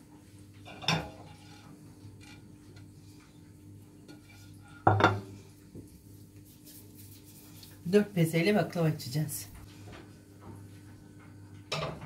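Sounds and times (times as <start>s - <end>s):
glass plate clattering on countertop: 4.8s - 5.3s.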